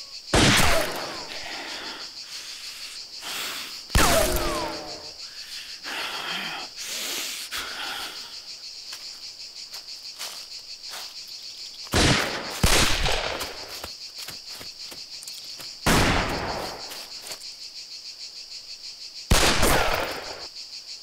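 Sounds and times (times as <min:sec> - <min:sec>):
insects chirring: 0:00.0 - 0:21.0
gunshots with long echo: 0:00.3 - 0:01.5, 0:03.9 - 0:05.1, 0:11.9 - 0:13.7, 0:15.9 - 0:16.9, 0:19.3 - 0:20.5.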